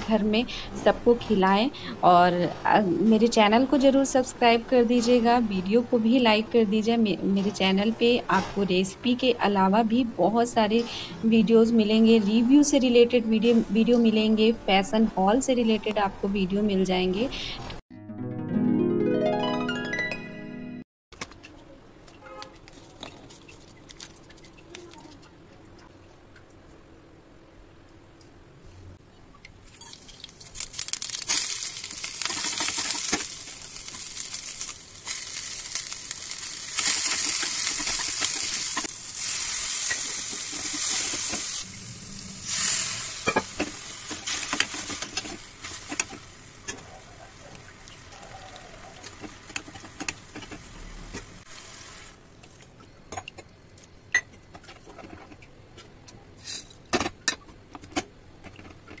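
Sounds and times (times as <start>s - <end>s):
vegetables sizzling in a wok: 29.8s - 48.2s, 48.9s - 52.4s.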